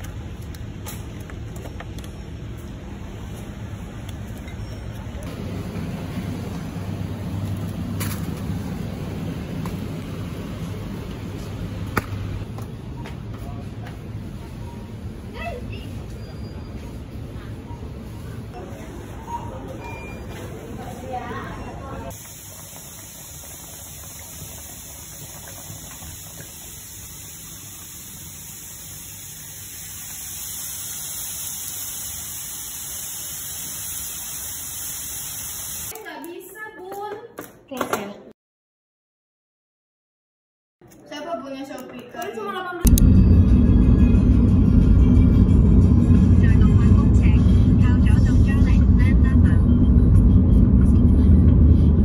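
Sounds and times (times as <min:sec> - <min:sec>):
supermarket background hum: 0:00.0 - 0:38.3, 0:40.8 - 0:52.0
stew simmering and bubbling: 0:22.1 - 0:31.9
chicken sizzling in oil: 0:22.1 - 0:35.9.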